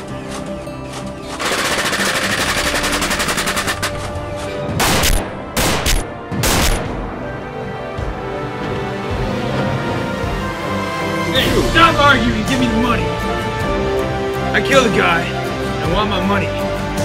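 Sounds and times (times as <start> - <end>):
background music: 0.0 - 17.0
automatic gunfire: 1.4 - 4.1.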